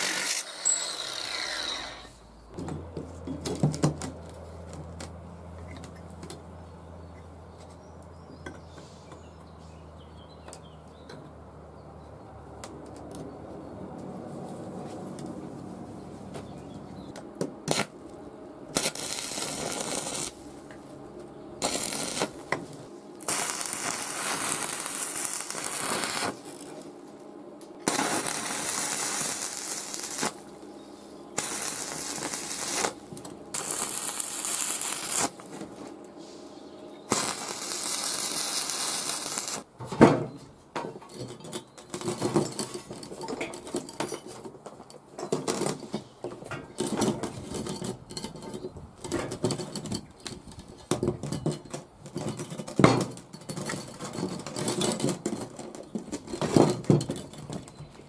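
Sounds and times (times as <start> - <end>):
arc welding crackle and sizzle: 0.0 - 2.1, 17.6 - 18.1, 18.7 - 39.7.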